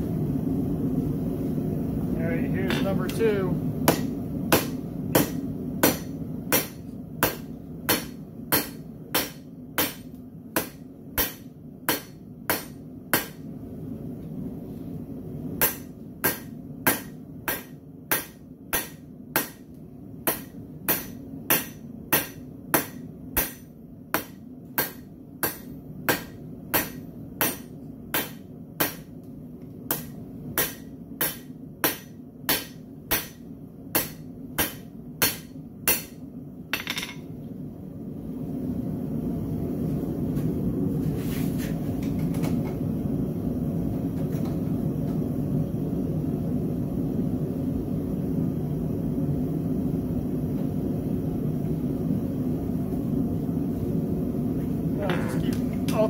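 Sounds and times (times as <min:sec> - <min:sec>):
steady low hum: 0:00.0 - 0:56.0
hammer striking steel on anvil: 0:03.8 - 0:13.4, 0:15.6 - 0:19.6, 0:20.2 - 0:29.1, 0:29.9 - 0:37.3.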